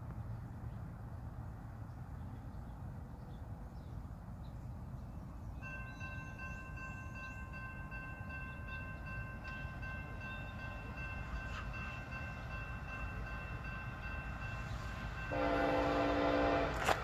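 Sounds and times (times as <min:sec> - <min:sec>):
locomotive air horn: 0:15.3 - 0:17.0.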